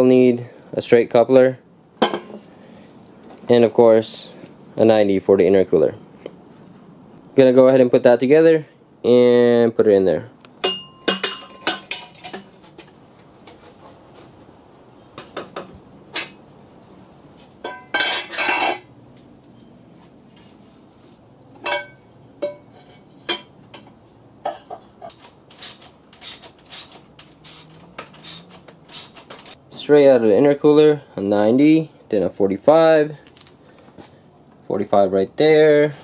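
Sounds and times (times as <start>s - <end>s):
metal pipes clinking and knocking: 10.6s - 12.6s, 17.6s - 18.9s, 21.6s - 23.9s.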